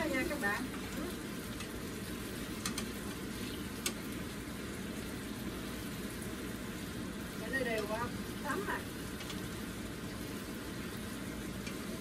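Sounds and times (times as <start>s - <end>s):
sauce bubbling and sizzling: 0.0s - 12.0s
utensils clicking against pan: 1.5s - 1.8s, 2.5s - 3.2s, 3.8s - 4.0s, 9.1s - 9.4s, 11.6s - 11.9s.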